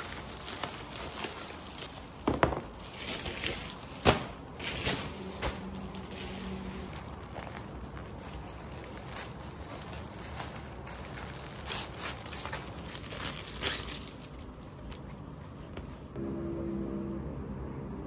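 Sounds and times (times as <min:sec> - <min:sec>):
plastic bags crinkling: 0:00.0 - 0:15.1.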